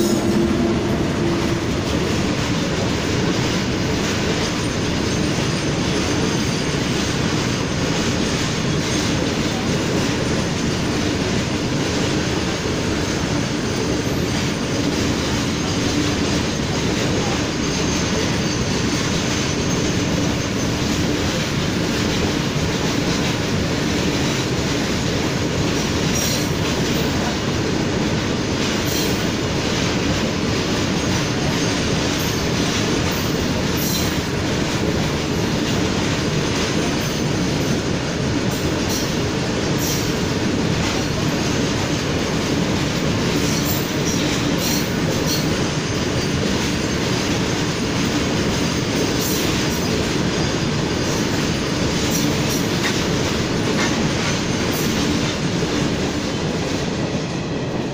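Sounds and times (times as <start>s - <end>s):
train wagons clicking and clanking: 0.0s - 57.9s
train wagons rumbling on rails: 0.0s - 57.9s.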